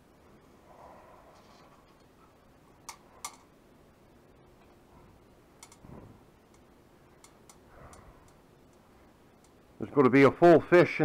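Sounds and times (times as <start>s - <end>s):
wire cage trap clicking: 5.6s - 5.8s.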